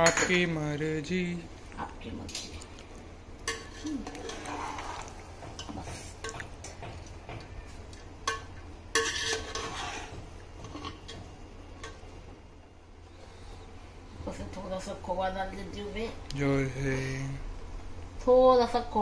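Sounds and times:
metal spoon scraping pot: 3.4s - 6.4s, 8.2s - 12.0s.

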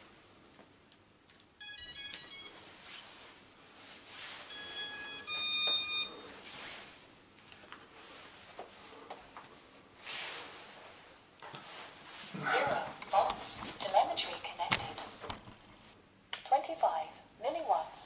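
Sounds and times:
drone motor startup beeps: 1.6s - 2.5s, 4.5s - 6.3s.

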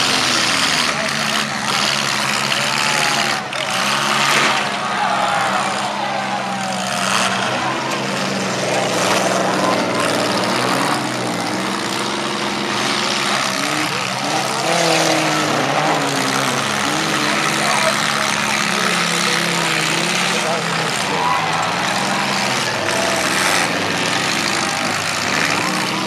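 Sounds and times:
car engines revving: 0.0s - 26.0s.

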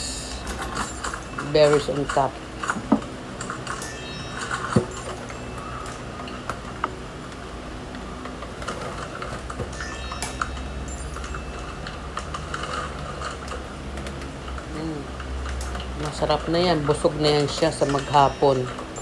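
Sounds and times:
kitchen utensils clicking: 15.2s - 19.0s.

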